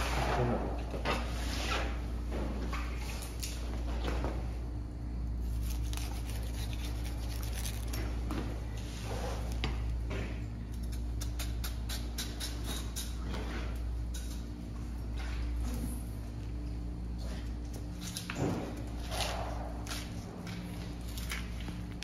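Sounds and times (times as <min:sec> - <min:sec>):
steady low hum: 0:00.0 - 0:22.0
knife cutting through fish flesh: 0:05.5 - 0:08.0.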